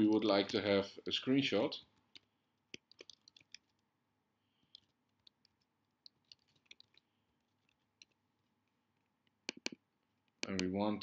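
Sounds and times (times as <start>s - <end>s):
faint keystrokes on computer keyboard: 2.0s - 3.8s, 4.7s - 8.2s.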